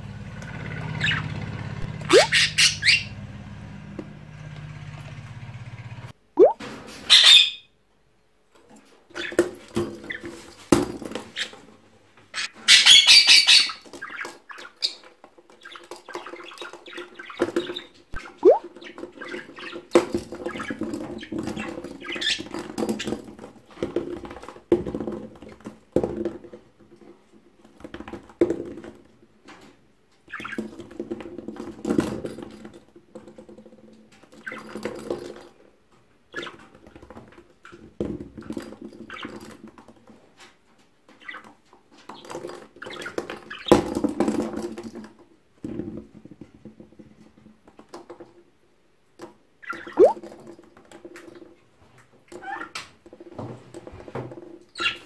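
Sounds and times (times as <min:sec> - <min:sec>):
soft bird sounds: 0:00.8 - 0:03.2
toy balls rolling: 0:02.0 - 0:02.5
budgerigar scrabbling in cage: 0:02.0 - 0:03.1
harsh parrot squawk: 0:02.0 - 0:03.1.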